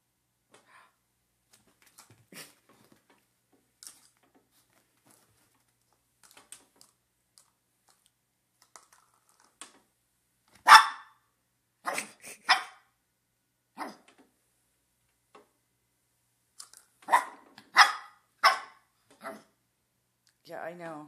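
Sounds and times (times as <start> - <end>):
dog barking: 10.6 - 11.2, 11.8 - 12.9, 13.8 - 14.1, 17.1 - 19.5.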